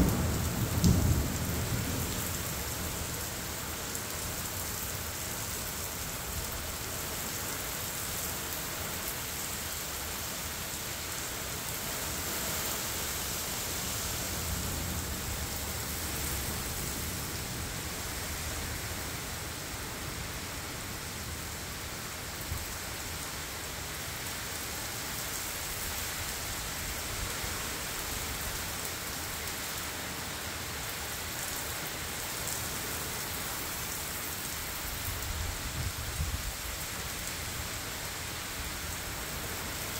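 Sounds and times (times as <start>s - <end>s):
low thunder rumble: 0.0s - 3.2s
torrential rain pouring: 0.0s - 39.9s.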